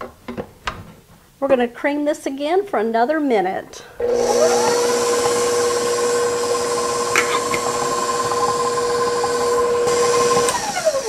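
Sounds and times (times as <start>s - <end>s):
stand mixer motor whining: 4.0s - 11.0s.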